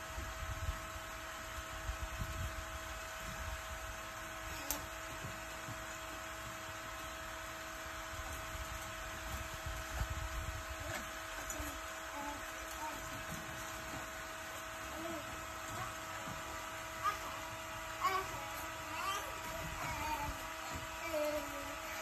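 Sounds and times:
small fan motor humming: 0.0 - 22.0
low irregular rumble: 8.0 - 22.0.

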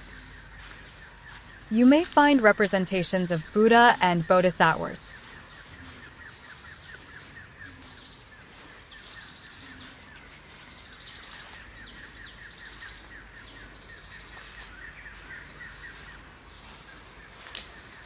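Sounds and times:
insects chirping rapidly: 0.0 - 9.7
insects whining: 0.0 - 17.3
bird calls: 0.0 - 18.0.

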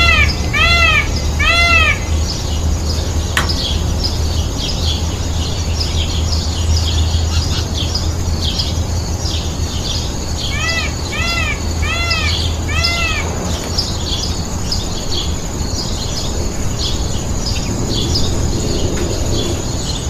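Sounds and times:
steady low rumble: 0.0 - 10.4, 11.0 - 20.0
small birds chirping: 0.0 - 20.0
sharp click: 3.4 - 3.8
arching animal calls: 10.4 - 15.5.

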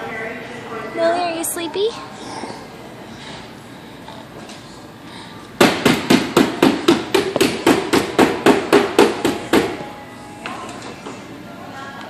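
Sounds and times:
rapid sharp knocks: 5.6 - 9.8.

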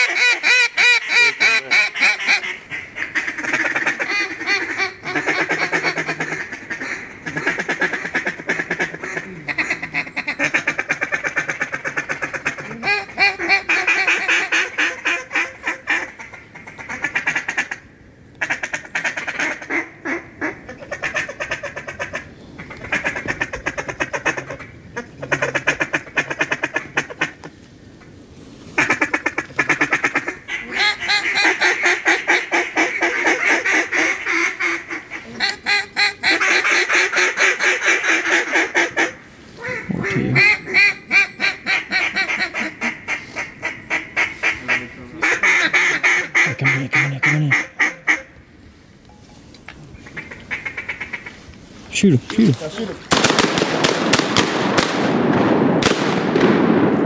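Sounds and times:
duck quacking and chattering: 0.0 - 17.8, 28.8 - 48.3.

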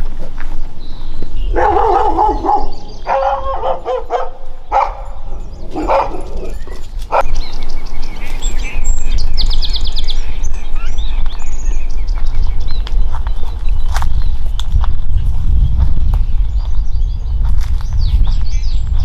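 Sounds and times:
small birds chirping: 0.0 - 19.0
bird trill: 0.9 - 12.8
dog barking: 1.5 - 7.3.

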